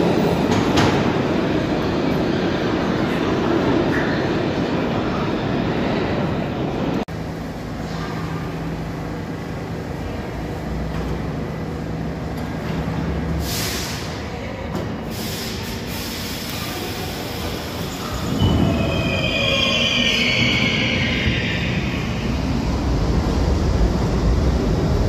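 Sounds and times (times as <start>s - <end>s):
subway train motor hum: 6.4s - 19.0s, 21.0s - 25.0s
train wheels squealing: 17.8s - 22.4s.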